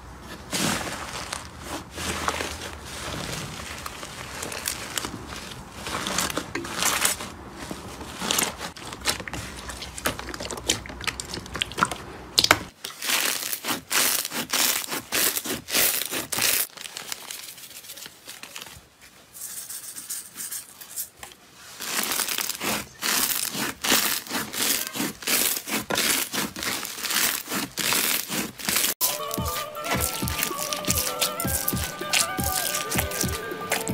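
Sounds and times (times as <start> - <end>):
slime crackling and popping: 8.7 - 16.7, 21.9 - 33.9.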